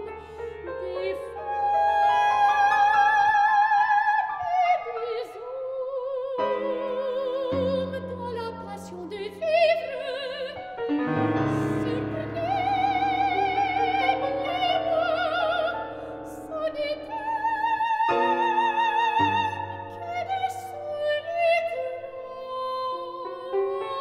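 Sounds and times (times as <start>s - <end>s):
soprano singing with vibrato: 0.0s - 24.0s.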